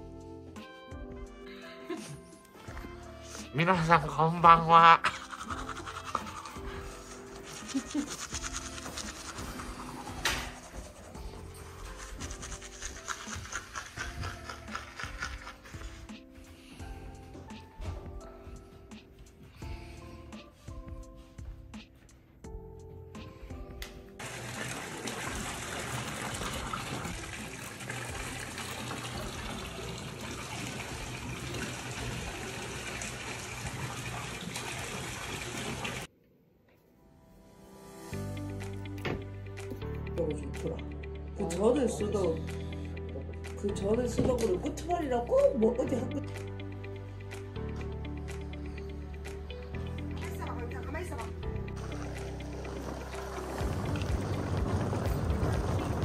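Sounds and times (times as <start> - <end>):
background music with held chords: 0.0 - 24.7, 37.0 - 56.0
water running and splashing: 4.8 - 16.1, 24.2 - 36.1, 51.8 - 56.0
rapid scratchy rubbing: 5.0 - 16.2.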